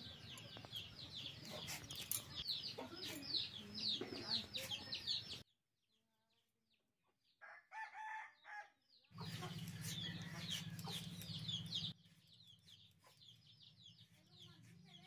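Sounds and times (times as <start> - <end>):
chickens peeping: 0.0 - 5.4, 9.1 - 14.2.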